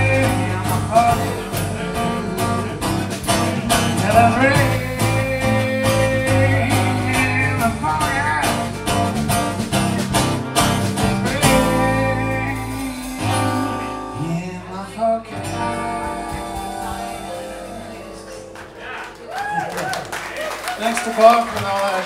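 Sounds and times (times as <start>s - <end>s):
strummed acoustic guitar: 0.0s - 19.1s
bending lead melody: 0.0s - 20.8s
sustained keyboard chords: 0.0s - 21.7s.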